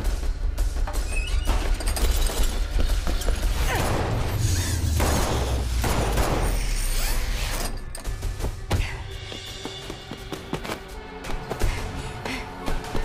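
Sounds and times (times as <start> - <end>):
gunshots: 3.7 - 6.8.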